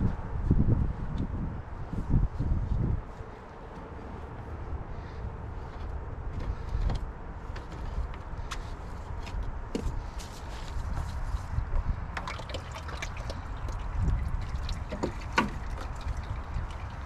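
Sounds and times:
oil trickling and dripping: 12.0s - 17.0s.

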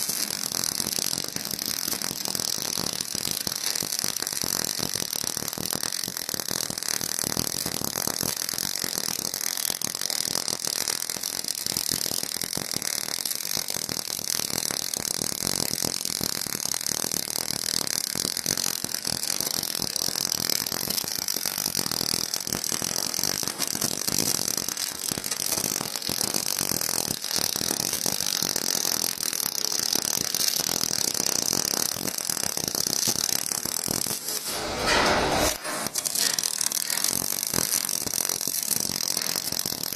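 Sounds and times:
welding arc crackling: 0.0s - 39.9s.

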